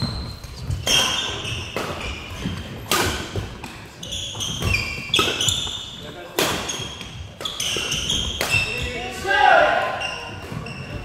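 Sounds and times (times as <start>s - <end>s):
shoes squeaking on wooden floor: 0.0s - 11.0s
racket hitting shuttlecock: 0.6s - 5.6s, 6.4s - 8.8s.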